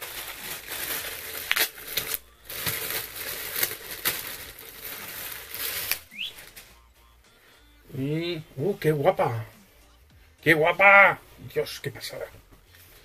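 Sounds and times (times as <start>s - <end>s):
plastic bag crinkling: 0.0s - 6.7s.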